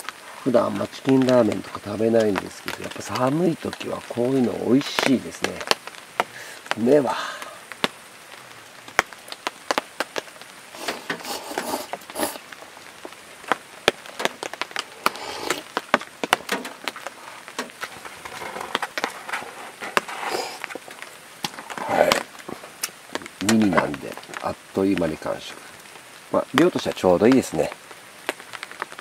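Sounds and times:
noodles being slurped: 10.8 - 12.4, 15.0 - 15.7, 19.2 - 20.8.

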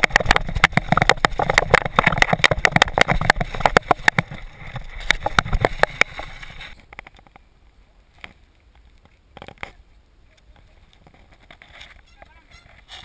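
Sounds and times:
bike handling clicks and knocks: 0.0 - 7.4
faint rustling: 0.0 - 13.0.

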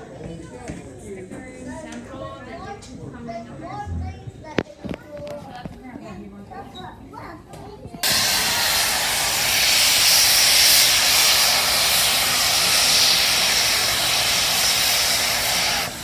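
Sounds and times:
steam locomotive venting steam: 8.0 - 16.0.

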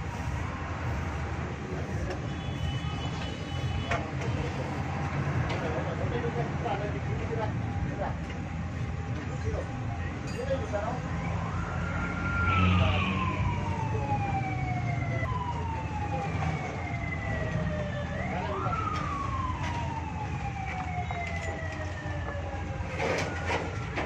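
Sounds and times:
siren wailing: 11.0 - 24.0.

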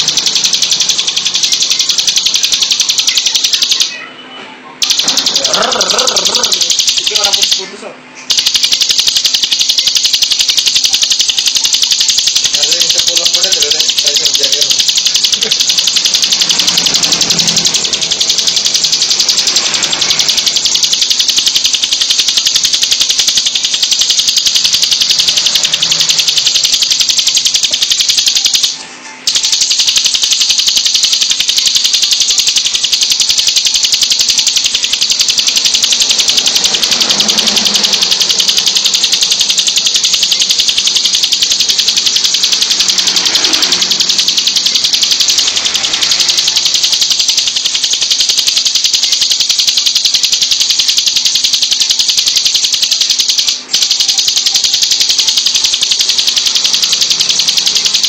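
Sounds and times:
bird singing fast rattling trill: 0.0 - 4.0, 4.8 - 7.6, 8.2 - 58.0.

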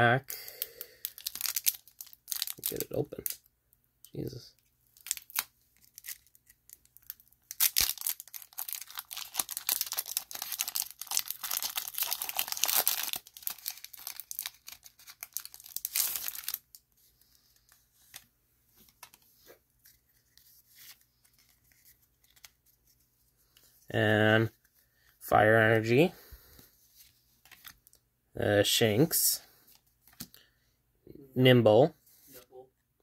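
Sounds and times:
foil wrapper tearing and crinkling: 1.0 - 3.4, 5.0 - 16.7
cards rustling and clicking: 4.6 - 23.8, 27.0 - 28.0, 29.7 - 30.4.

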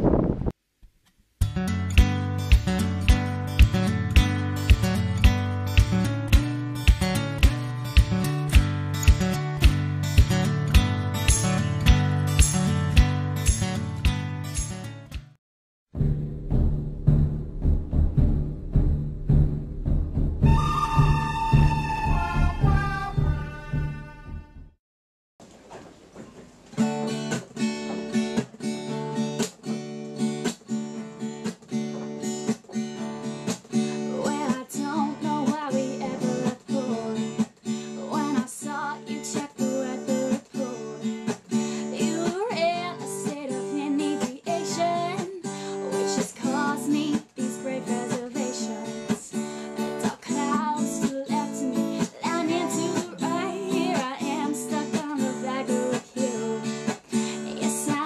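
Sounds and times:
acoustic guitar strumming: 1.4 - 15.3, 26.8 - 34.5
guitar melody line: 1.4 - 15.3, 26.8 - 38.3, 39.0 - 58.0.

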